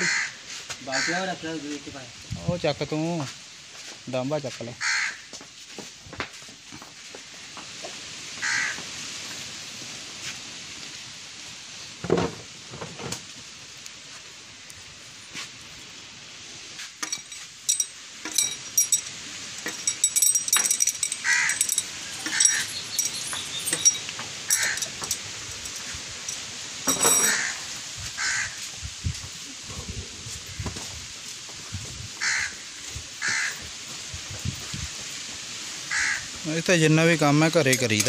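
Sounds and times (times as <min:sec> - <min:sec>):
birds cawing: 0:00.0 - 0:01.4, 0:04.8 - 0:05.4, 0:08.4 - 0:08.8, 0:21.0 - 0:25.1, 0:27.2 - 0:28.7, 0:32.2 - 0:33.8, 0:35.9 - 0:36.4
spanners clinking on metal: 0:17.0 - 0:27.5, 0:37.2 - 0:38.0.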